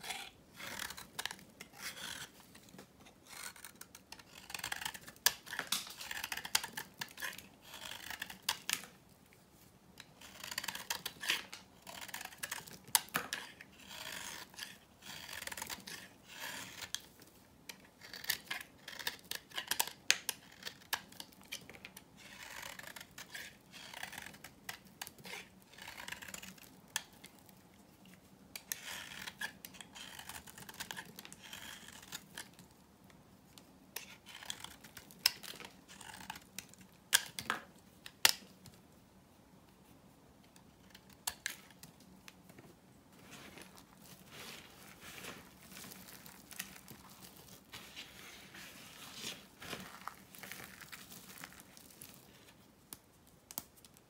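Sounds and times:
knife shaving hard soap: 0.0s - 8.9s, 10.0s - 17.1s, 17.7s - 32.6s, 34.0s - 37.4s, 49.2s - 52.6s.

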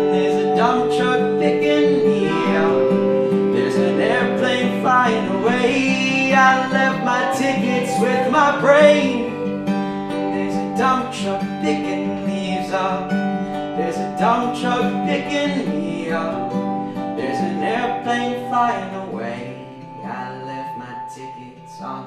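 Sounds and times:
mandolin picking: 0.0s - 14.9s
wine glasses ringing: 0.0s - 19.8s
acoustic guitar strumming: 0.0s - 22.0s.

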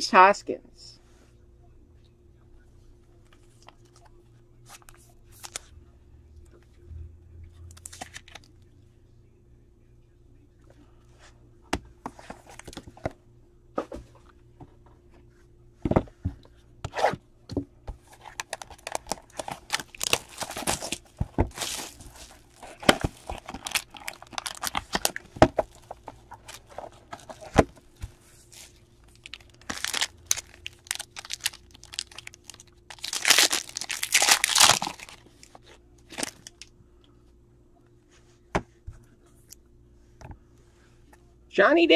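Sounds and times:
cardboard and cards rustling: 17.9s - 36.6s
plastic wrap tearing and crinkling: 18.2s - 27.7s, 28.4s - 35.5s, 36.1s - 36.7s.

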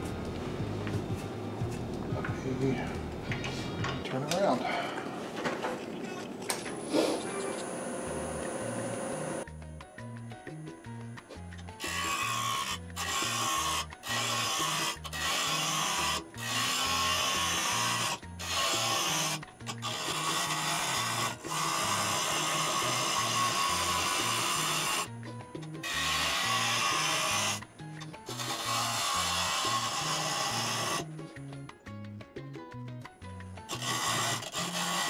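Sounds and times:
background music with bass line: 0.0s - 4.0s, 9.4s - 11.8s, 25.1s - 25.9s, 31.0s - 33.7s
gouge scraping wood on a lathe: 11.8s - 25.1s, 25.8s - 27.6s, 28.3s - 31.1s, 33.7s - 35.0s.

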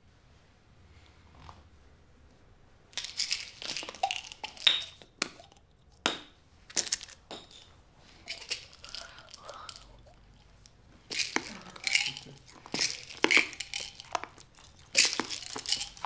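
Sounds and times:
chewing: 8.0s - 16.0s.

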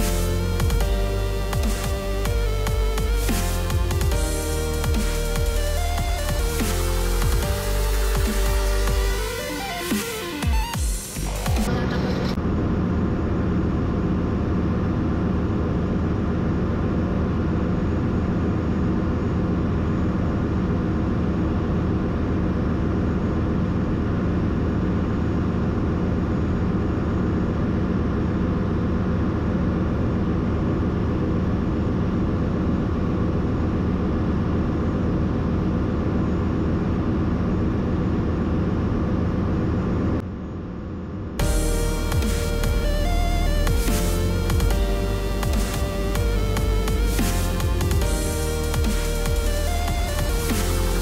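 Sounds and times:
engine room machinery drone: 0.0s - 51.0s.

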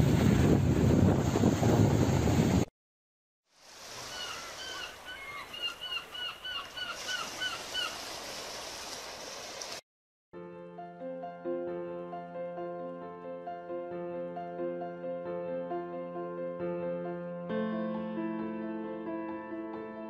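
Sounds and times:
wind buffeting microphone: 0.0s - 2.7s
birds calling: 3.9s - 8.1s.

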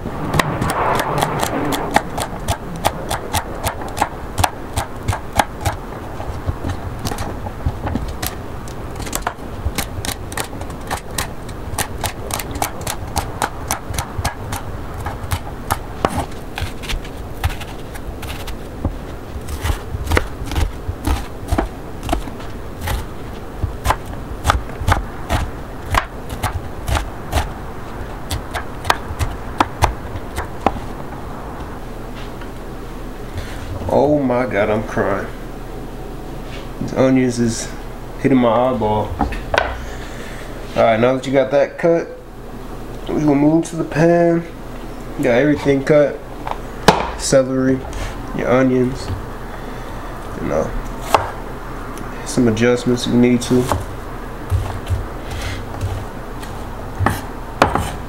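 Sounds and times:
knife chopping on wooden board: 1.0s - 5.8s, 9.0s - 27.5s, 46.9s - 47.2s, 51.1s - 51.4s, 53.6s - 53.9s, 54.5s - 58.0s.

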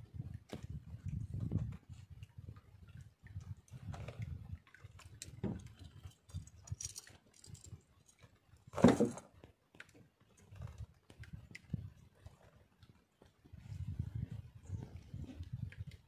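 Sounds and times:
fishing line rustling and knocking: 3.8s - 12.0s.

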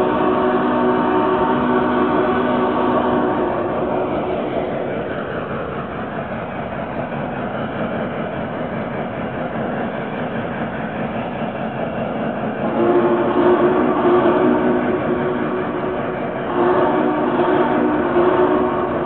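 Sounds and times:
chord of steady tones: 0.0s - 5.1s, 12.6s - 19.0s
model train rumbling on track: 0.0s - 19.0s.

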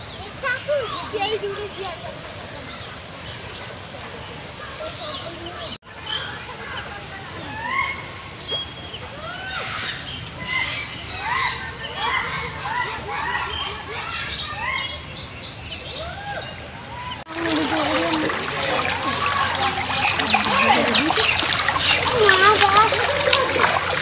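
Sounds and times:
birds chirping: 0.0s - 24.0s
rushing splashing floodwater: 17.2s - 24.0s.

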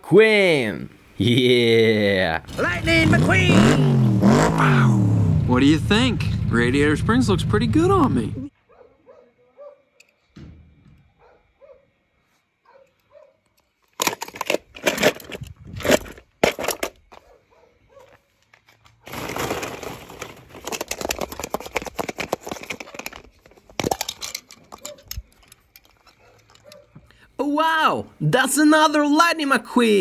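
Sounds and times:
plastic balls clattering: 13.9s - 17.1s, 19.0s - 26.8s.

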